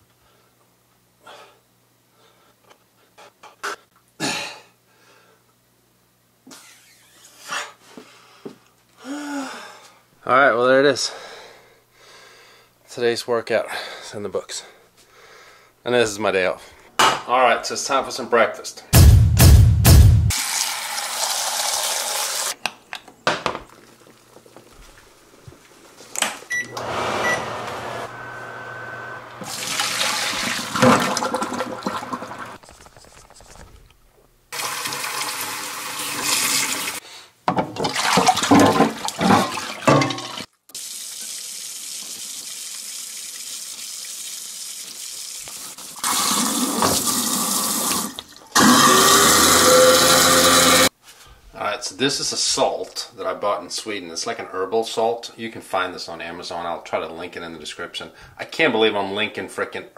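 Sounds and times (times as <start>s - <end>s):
tap water running into a sink: 20.3s - 22.5s, 29.4s - 32.6s, 34.6s - 37.0s, 37.8s - 48.6s.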